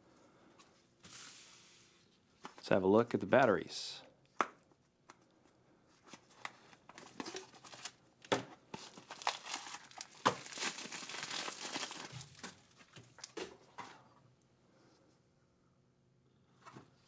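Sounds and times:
bubble wrap crinkling: 6.0s - 8.0s, 8.7s - 13.4s.

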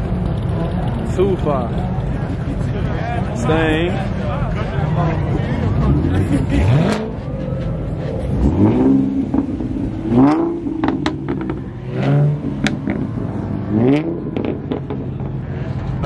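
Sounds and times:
car engines revving: 0.0s - 16.0s
low engine rumble: 0.0s - 16.0s
sharp exhaust pops: 8.6s - 11.8s, 12.6s - 13.2s, 14.3s - 15.5s.

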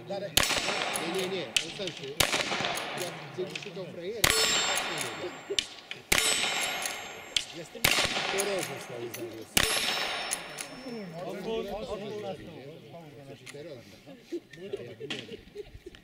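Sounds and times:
rifle shots: 0.4s - 10.9s
steel plate target ringing: 4.2s - 11.0s.

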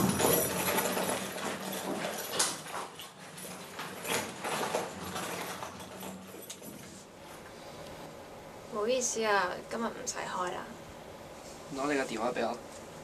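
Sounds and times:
lift doors sliding closed: 0.0s - 7.1s.

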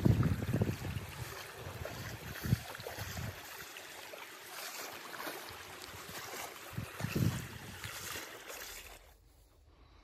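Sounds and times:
rocky stream running: 0.0s - 9.3s
person wading through water: 0.0s - 9.7s.

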